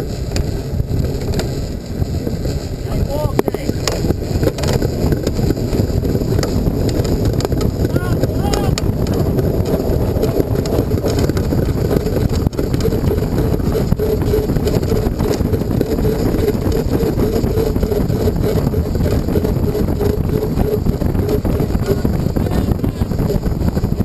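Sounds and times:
pulsing steady whirr: 0.0s - 24.0s
wind rumble on microphone: 0.0s - 24.0s.

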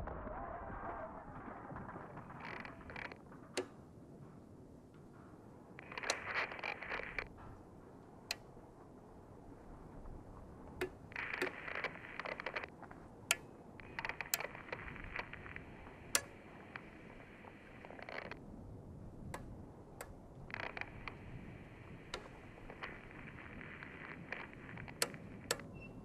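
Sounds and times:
sharp cracks: 0.0s - 4.0s, 5.8s - 7.4s, 10.7s - 18.4s, 19.2s - 25.7s
crackling crunching noise: 0.0s - 26.0s.

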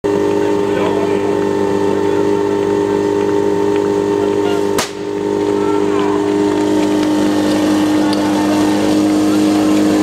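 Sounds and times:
pump engine idling: 0.1s - 10.0s
sharp starting shot crack: 4.6s - 5.2s.

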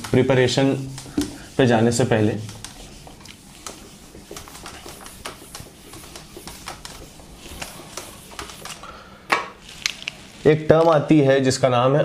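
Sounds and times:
duster rubbing whiteboard: 0.0s - 8.8s.

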